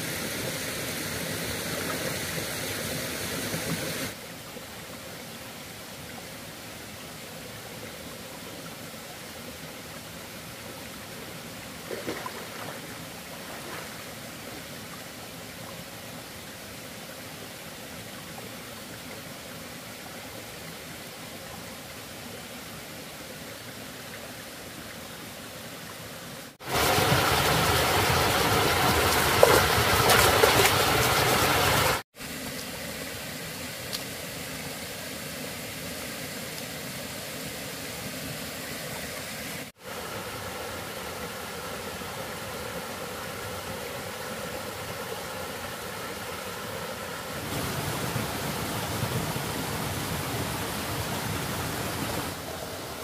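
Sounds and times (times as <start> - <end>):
rocky stream rushing: 26.5 - 35.1, 35.8 - 53.0.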